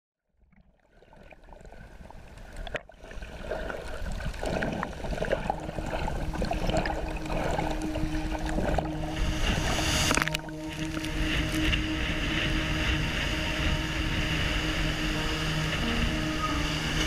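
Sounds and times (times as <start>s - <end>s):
underwater bubbling and gurgling: 0.4s - 17.0s
low steady note: 4.4s - 17.0s.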